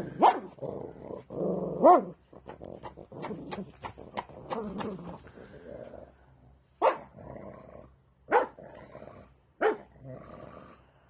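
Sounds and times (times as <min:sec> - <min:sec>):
dog growling: 0:00.0 - 0:06.2, 0:07.0 - 0:10.9
dog barking: 0:00.2 - 0:00.5, 0:06.8 - 0:07.1, 0:08.3 - 0:08.6, 0:09.6 - 0:09.9.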